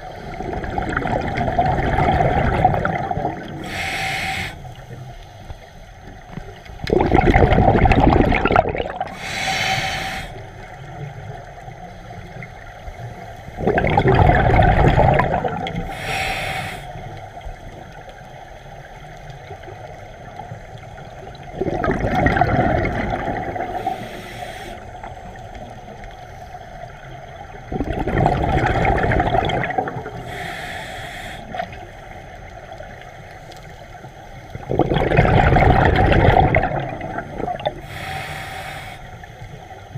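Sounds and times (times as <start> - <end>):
rush of exhaled bubbles: 0.0 - 4.5, 6.8 - 10.4, 13.5 - 16.3, 21.2 - 25.6, 27.3 - 30.5, 34.5 - 38.2
diver breathing through regulator: 3.4 - 5.7, 9.0 - 10.6, 15.1 - 17.2, 23.5 - 25.2, 30.1 - 31.8, 37.2 - 39.4.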